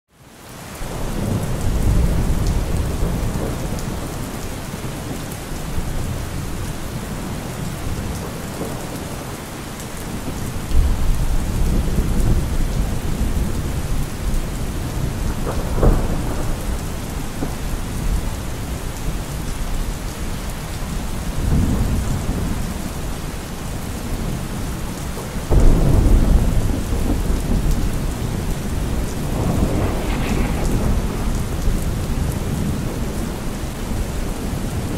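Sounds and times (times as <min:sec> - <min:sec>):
steady rain: 0:00.1 - 0:34.9
low thunder rumbles: 0:00.9 - 0:09.4, 0:10.1 - 0:34.9
sharp thunder crack: 0:25.5 - 0:33.4.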